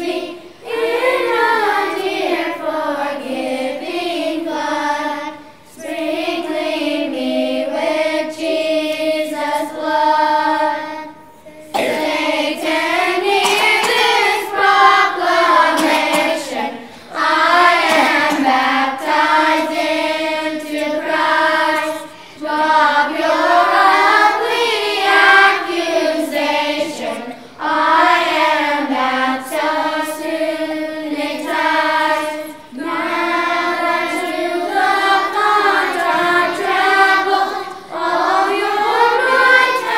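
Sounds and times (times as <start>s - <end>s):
children's choir singing a hymn: 0.0s - 39.9s.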